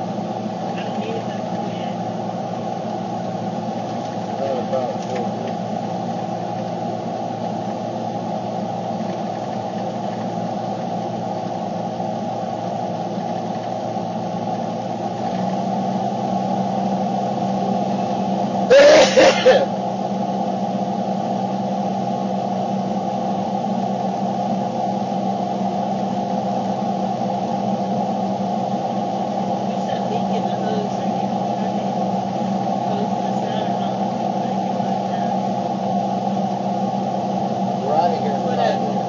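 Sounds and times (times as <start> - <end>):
car engine hum: 0.0 - 39.0
road noise: 14.4 - 19.7.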